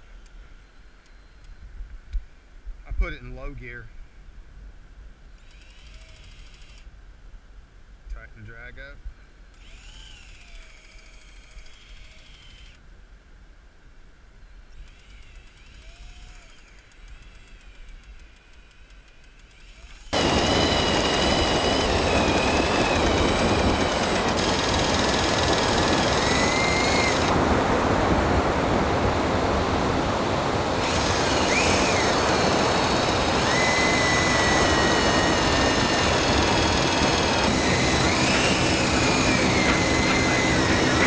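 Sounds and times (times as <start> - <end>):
cordless drill motor whine: 5.3 - 6.9, 9.5 - 12.8, 14.8 - 27.4, 30.8 - 41.0.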